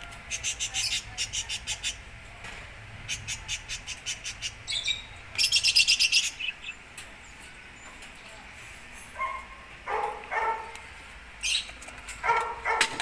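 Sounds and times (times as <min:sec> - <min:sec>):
parakeets chirping: 0:00.3 - 0:02.1, 0:02.9 - 0:07.9, 0:11.4 - 0:12.8.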